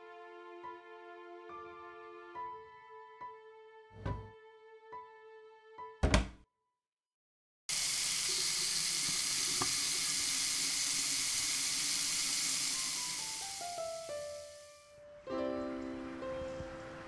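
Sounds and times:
frying pan sizzling: 7.7 - 14.7.

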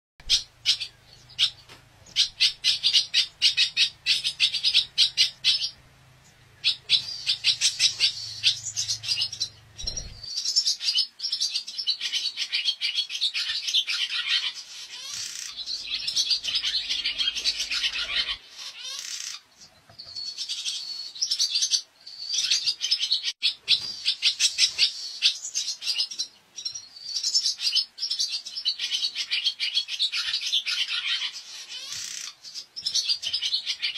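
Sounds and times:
swallow twittering: 0.2 - 19.4.

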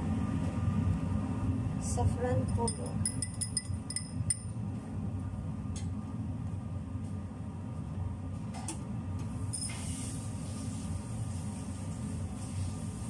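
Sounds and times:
kitchen machinery hum: 0.0 - 13.0
metal spoon clinking glass: 2.5 - 4.5.

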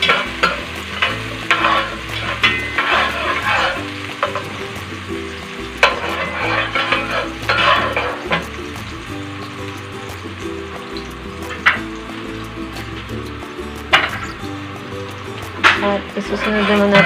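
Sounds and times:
spatula scraping pot bottom: 0.0 - 4.6, 5.8 - 8.5, 15.8 - 17.0
onions sizzling in oil: 0.0 - 17.0.

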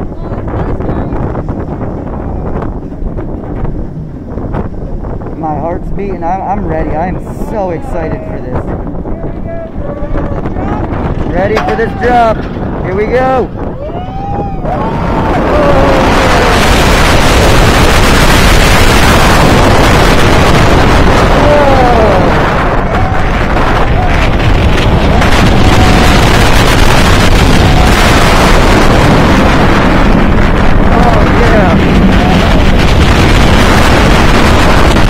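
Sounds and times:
coaster train rumbling on track: 0.0 - 35.0
wind buffeting microphone: 0.0 - 35.0
riders yelling: 21.3 - 24.4.

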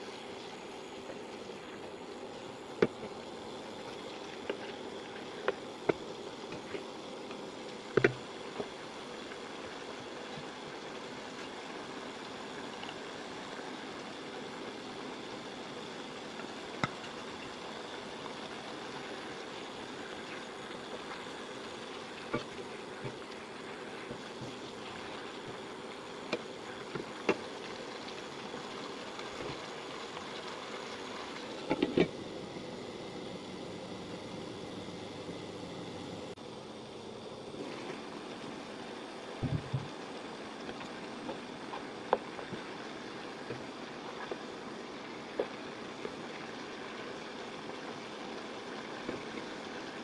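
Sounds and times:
sauce sizzling and bubbling: 0.0 - 50.0.

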